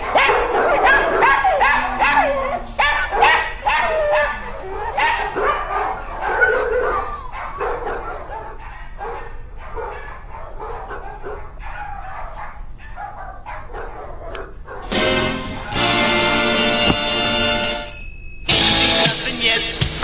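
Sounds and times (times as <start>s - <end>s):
music: 14.8s - 17.9s, 18.5s - 20.0s.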